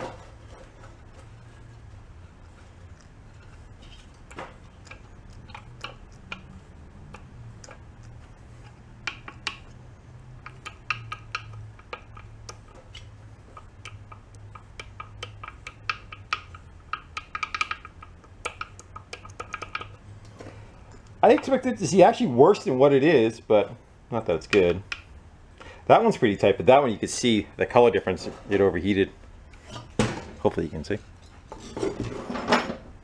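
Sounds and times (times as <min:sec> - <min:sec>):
steady low hum: 0:00.0 - 0:33.0
metallic clicks and taps: 0:03.0 - 0:20.3, 0:24.5 - 0:25.1.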